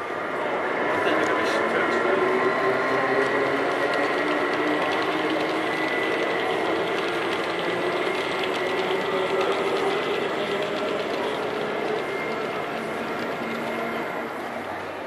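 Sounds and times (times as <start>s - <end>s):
model train motor whirring: 3.0s - 14.4s.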